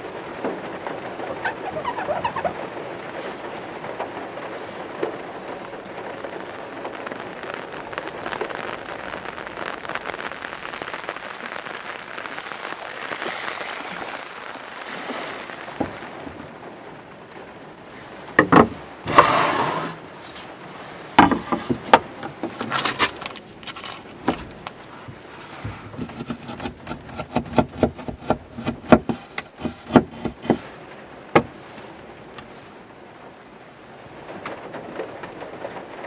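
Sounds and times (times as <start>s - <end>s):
heavy rain on a van roof: 0.0s - 36.0s
knocks on a wooden table: 18.4s - 18.8s
clatter of things handled: 21.2s - 30.7s.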